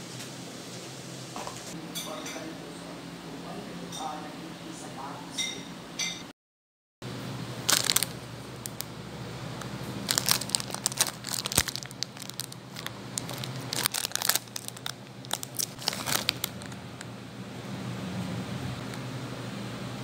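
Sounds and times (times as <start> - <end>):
plastic wrapper crinkling and tearing: 7.6 - 8.9, 10.0 - 17.1.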